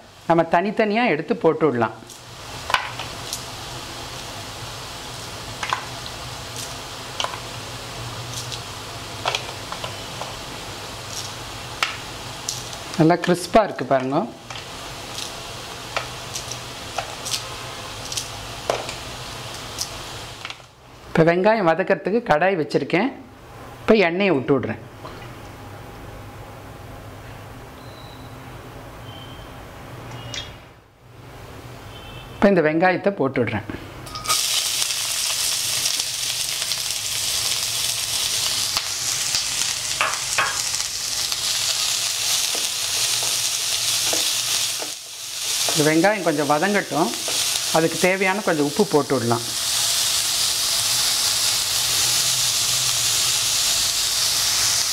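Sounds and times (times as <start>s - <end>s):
onions sizzling in hot oil: 0.0s - 21.2s, 34.1s - 54.9s.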